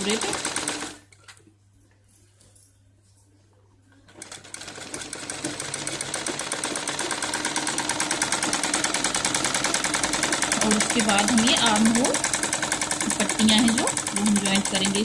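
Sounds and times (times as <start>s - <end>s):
sewing machine stitching: 0.0s - 1.1s, 4.1s - 15.0s.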